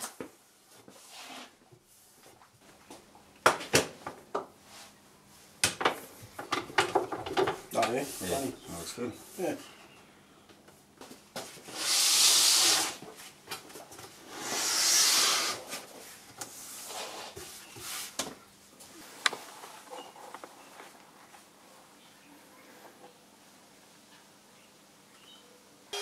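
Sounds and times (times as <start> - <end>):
hissing rubbing on wooden board: 11.6 - 13.0, 14.2 - 15.8.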